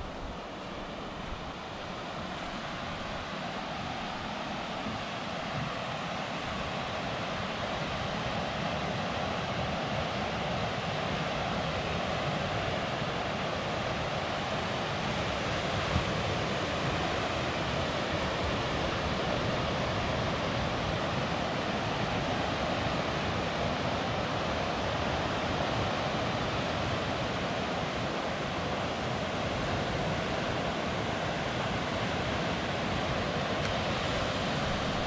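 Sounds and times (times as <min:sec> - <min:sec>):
ocean surf breaking on beach: 0:00.0 - 0:35.0
wind buffeting microphone: 0:33.8 - 0:35.0.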